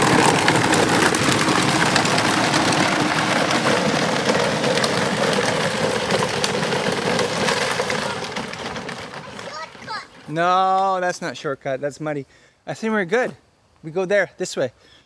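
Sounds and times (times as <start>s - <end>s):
plastic wheels crunching on gravel: 0.0s - 11.2s.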